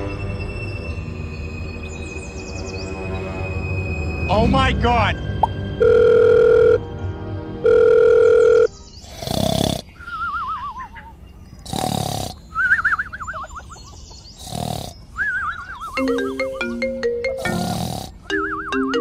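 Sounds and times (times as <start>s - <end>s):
cartoon growling bursts: 11.6s - 12.5s, 15.9s - 18.6s
warbling falling whistles: 15.2s - 16.1s.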